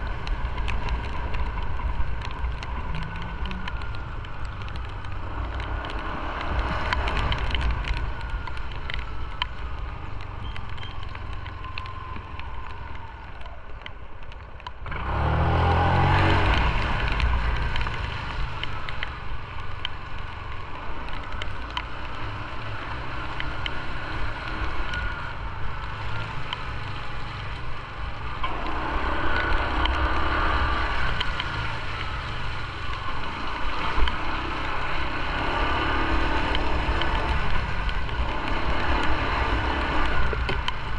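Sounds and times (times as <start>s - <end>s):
motorcycle engine revving: 14.9s - 18.4s.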